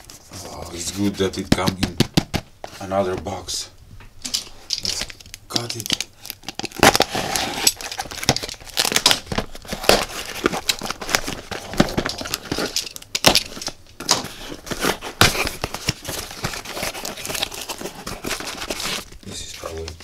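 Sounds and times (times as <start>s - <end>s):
packing tape ripping: 4.7s - 19.1s
cardboard crinkling: 4.7s - 20.0s
knife cutting cardboard box: 14.1s - 19.0s.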